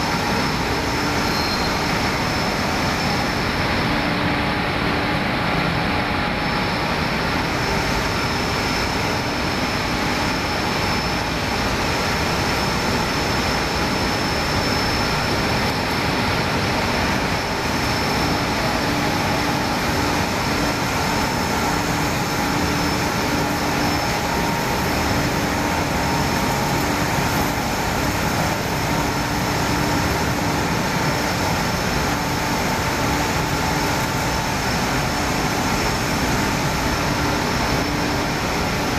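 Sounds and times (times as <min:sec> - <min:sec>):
faint high whine: 0:00.0 - 0:04.2
textile machinery running: 0:00.0 - 0:38.9.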